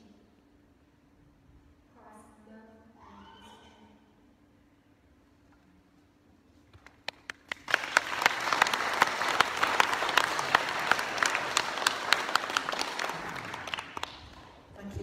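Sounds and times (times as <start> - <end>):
nearby person clapping: 6.7 - 14.6
audience applauding: 6.8 - 14.6.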